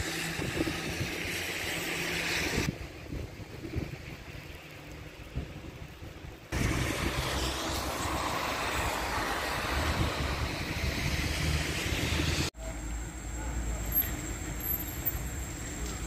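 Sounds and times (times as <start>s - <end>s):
wind buffeting microphone: 0.2s - 1.5s, 2.4s - 4.4s, 5.3s - 12.5s.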